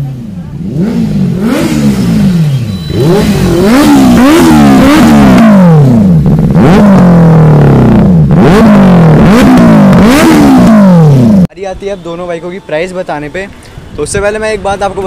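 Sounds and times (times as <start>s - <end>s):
motorcycle engine revving: 0.0s - 11.5s.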